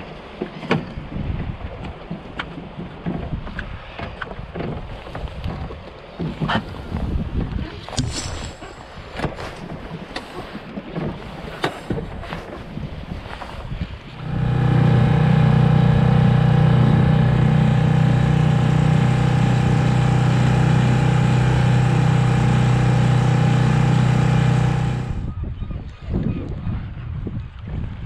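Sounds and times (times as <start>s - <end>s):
wind: 0.0s - 16.5s, 21.5s - 28.0s
water noise: 4.8s - 25.3s
outboard motor running: 14.0s - 25.3s.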